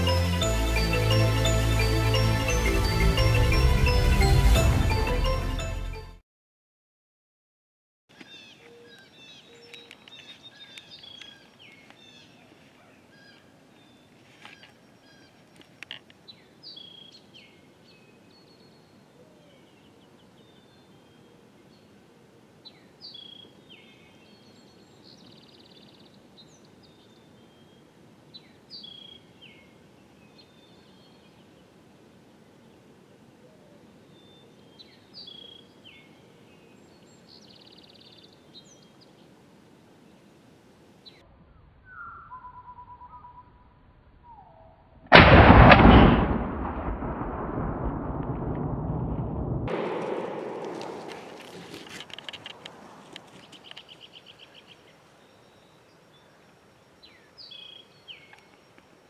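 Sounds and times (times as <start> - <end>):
songbirds singing faintly: 8.1 - 45.1, 49.8 - 59.0
bird chirps: 8.2 - 21.3, 41.0 - 44.8, 53.2 - 58.9
steady background hiss: 8.3 - 41.2, 49.7 - 59.0.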